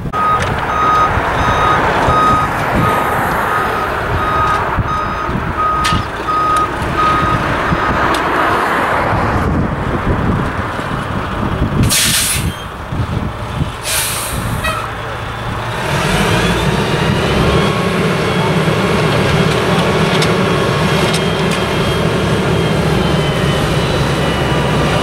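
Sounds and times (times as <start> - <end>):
diesel engine running: 0.0 - 25.0
backup alarm beeping: 0.2 - 8.1
air brakes hissing: 11.8 - 12.7, 13.8 - 14.9.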